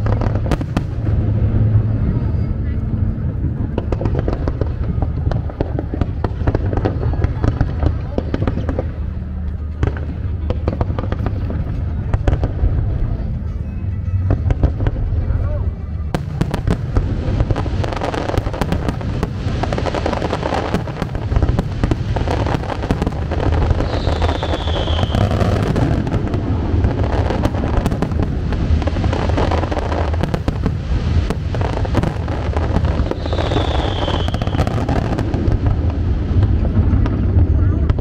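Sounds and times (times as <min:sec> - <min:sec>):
fireworks bangs and crackles: 0:00.0 - 0:38.0
low rumble: 0:00.0 - 0:38.0
high falling whistle: 0:23.8 - 0:25.3, 0:33.1 - 0:34.6.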